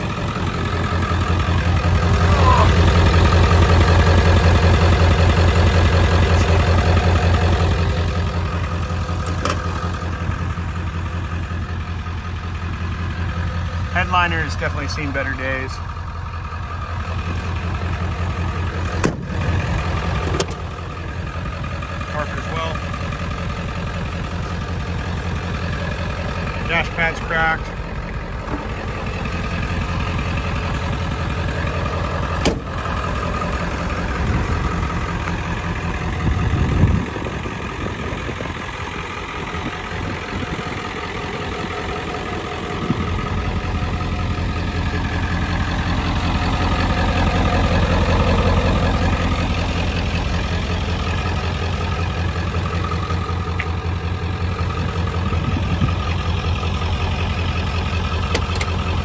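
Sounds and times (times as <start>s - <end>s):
diesel engine idling: 0.0s - 59.0s
louder thump: 19.0s - 19.3s, 32.4s - 32.7s.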